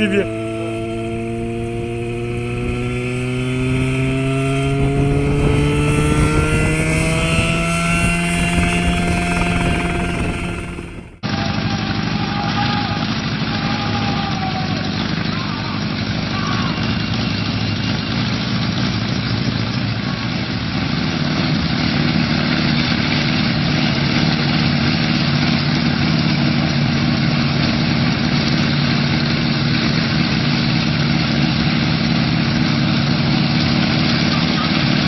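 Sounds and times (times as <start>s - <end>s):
helicopter engine and rotors running: 0.0s - 35.0s.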